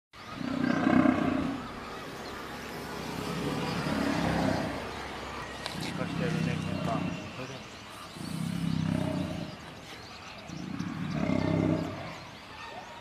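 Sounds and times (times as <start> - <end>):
lions growling and snarling: 0.3 - 1.8, 3.2 - 5.0, 5.6 - 12.4.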